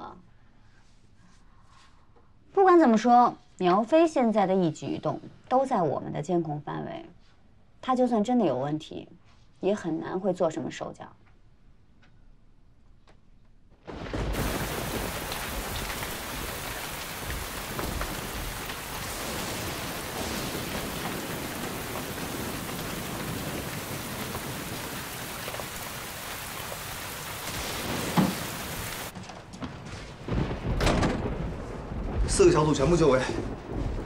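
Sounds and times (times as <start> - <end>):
heavy rain pouring: 14.0 - 34.0.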